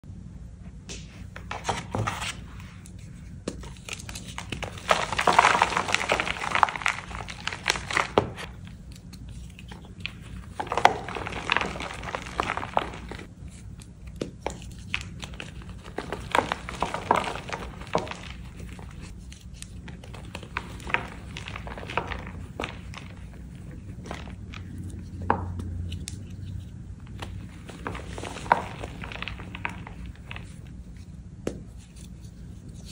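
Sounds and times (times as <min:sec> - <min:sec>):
chalk crunching and crumbling: 0:01.4 - 0:32.9.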